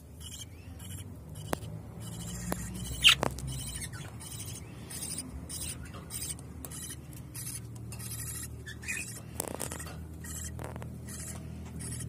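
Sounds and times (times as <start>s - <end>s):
budgerigar chicks raspy calls: 0.0s - 12.0s
steady low hum: 0.0s - 12.0s.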